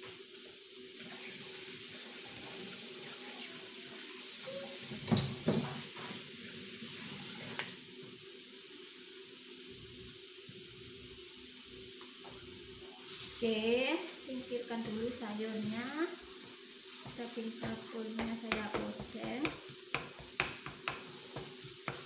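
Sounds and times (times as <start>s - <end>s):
tap running into sink: 4.9s - 6.2s, 17.0s - 22.0s.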